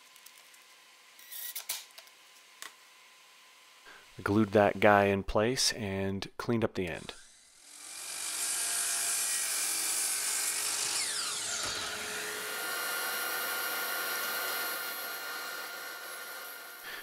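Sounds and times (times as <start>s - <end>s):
miter saw cutting wood: 3.9s - 5.0s, 7.0s - 17.0s
saw blade whine spinning down: 7.2s - 17.0s.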